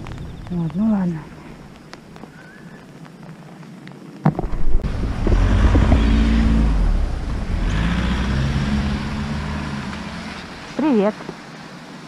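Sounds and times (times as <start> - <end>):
tyre hiss on wet street: 0.0 - 12.0
vehicle engine rumble: 4.3 - 12.0.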